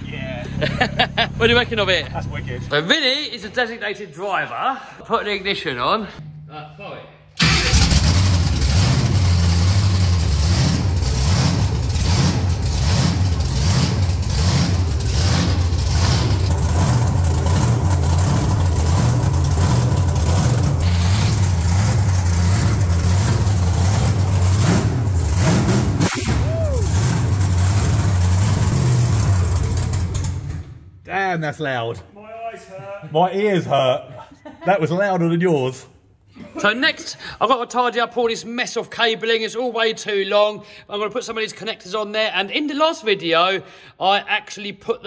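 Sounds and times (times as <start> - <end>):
truck engine pulsing rumble: 7.4 - 30.8.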